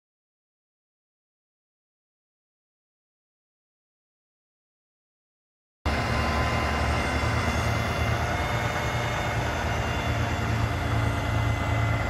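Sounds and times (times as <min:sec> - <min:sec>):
diesel engine running steadily: 0:05.9 - 0:12.0.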